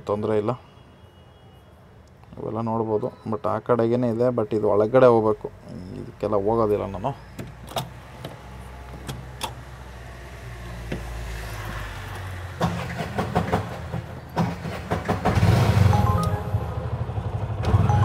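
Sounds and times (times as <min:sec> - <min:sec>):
heavy road traffic: 0:00.0 - 0:18.0
auto-rickshaw engine running: 0:09.2 - 0:18.0.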